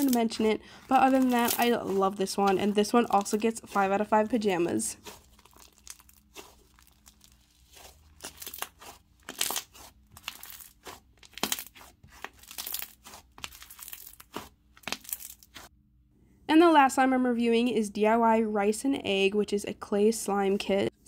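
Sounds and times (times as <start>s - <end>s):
slime squeezed by hand crackling: 5.0s - 15.7s.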